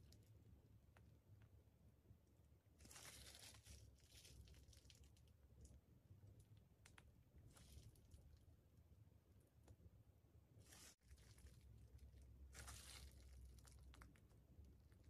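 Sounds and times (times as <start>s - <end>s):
plastic piping bag crinkling: 2.8s - 8.4s, 10.6s - 15.0s.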